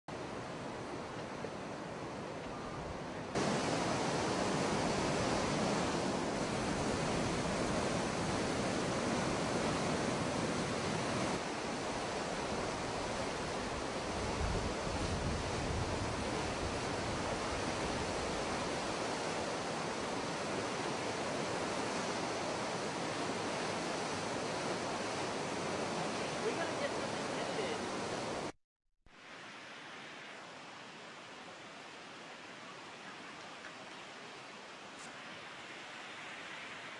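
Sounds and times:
floodwater rushing: 3.1s - 28.5s.

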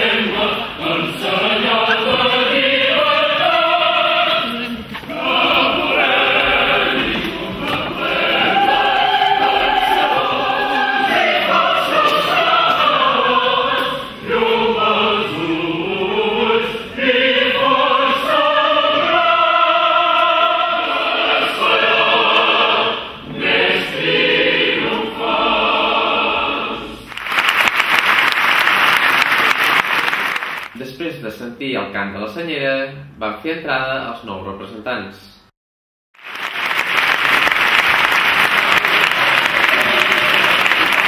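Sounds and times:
choir singing: 0.0s - 27.1s, 38.2s - 41.0s
applause: 27.1s - 30.8s, 36.2s - 41.0s.

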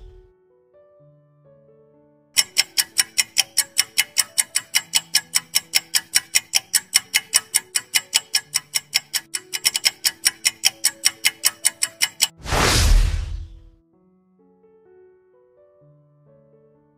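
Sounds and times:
fast clock ticking: 0.0s - 0.2s, 2.4s - 12.4s
soft melody of low notes: 0.0s - 0.4s.

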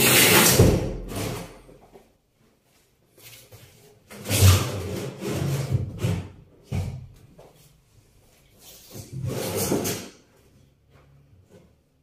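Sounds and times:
cabinet scraping across floor: 8.8s - 10.2s.

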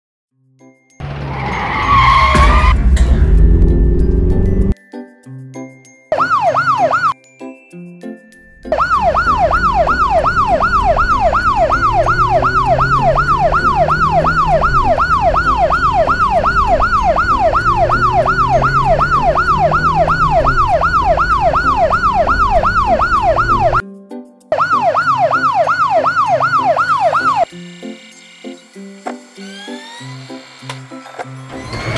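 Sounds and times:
low rumble: 2.1s - 4.8s
cartoon police siren yelping: 6.2s - 7.2s, 8.7s - 23.8s, 24.6s - 27.5s.

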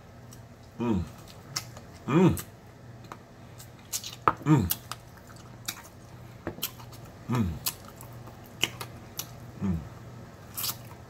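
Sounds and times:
person chewing and biting: 0.3s - 2.5s, 3.5s - 9.5s, 10.4s - 11.0s.

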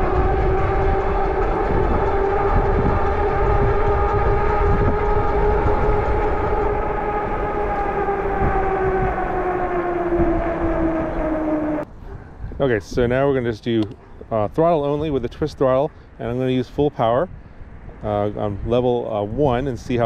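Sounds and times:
electric motor whining: 0.0s - 11.8s
wind rumble on microphone: 0.0s - 20.0s.

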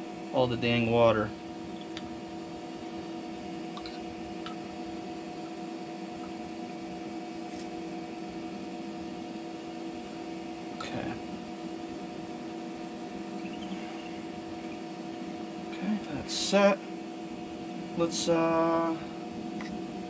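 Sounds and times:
steady electrical hum: 0.0s - 20.0s.

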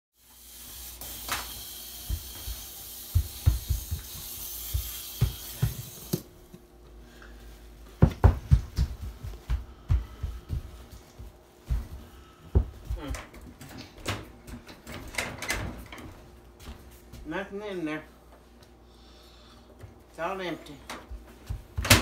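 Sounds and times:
feet stomping on wooden floor: 2.0s - 6.3s, 7.9s - 13.6s, 21.1s - 22.0s.

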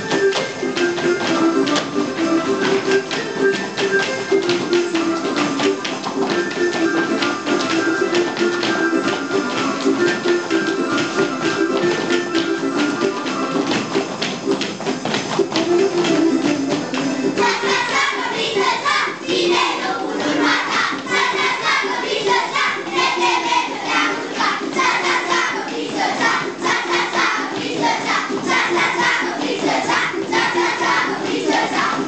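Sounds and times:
music with a quick beat: 0.0s - 32.0s
children singing and shouting: 15.5s - 32.0s.

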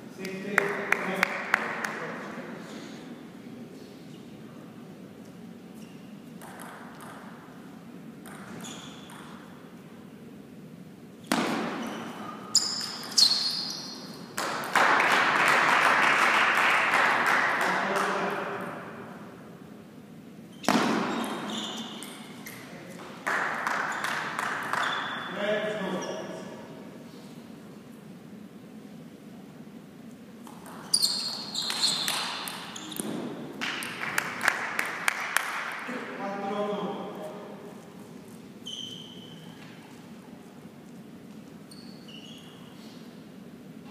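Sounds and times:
shoes squeaking on floor: 5.7s - 6.4s, 8.3s - 9.5s, 11.2s - 14.3s, 20.5s - 22.8s, 23.8s - 26.6s, 30.5s - 33.4s, 38.3s - 40.1s, 41.3s - 43.0s
spectators applauding: 14.4s - 18.2s, 23.2s - 25.0s, 33.6s - 35.9s.

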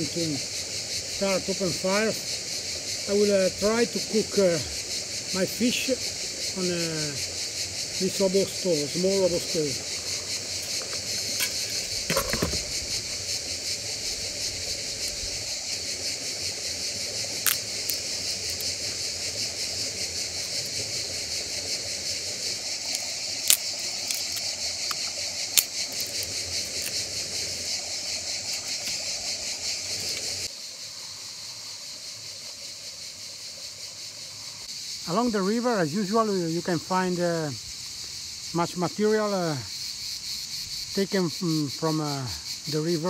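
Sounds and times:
insects buzzing: 0.0s - 43.0s
sticks snapping: 17.5s - 18.0s, 22.9s - 27.0s.

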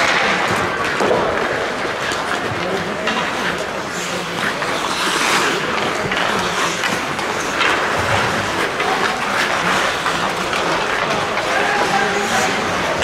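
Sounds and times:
faint voices: 0.0s - 13.0s
hockey sticks and puck knocking: 0.0s - 13.0s
skates scraping ice: 0.0s - 13.0s.

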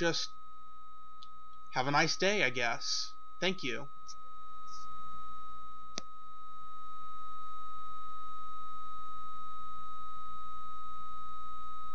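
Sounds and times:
continuous electronic beep: 0.0s - 0.4s, 1.0s - 5.8s.

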